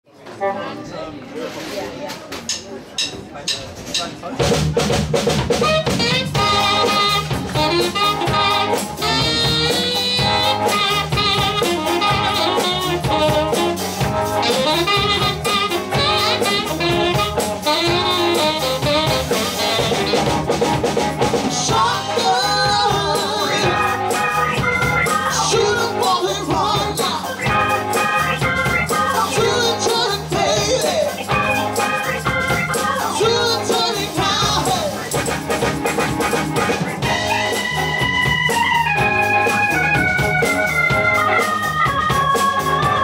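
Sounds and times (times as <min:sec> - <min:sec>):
soul blues band playing: 0:00.3 - 0:43.0
saxophone and trumpet lines: 0:05.4 - 0:43.0
lead vocal singing: 0:21.5 - 0:31.5, 0:32.6 - 0:35.1.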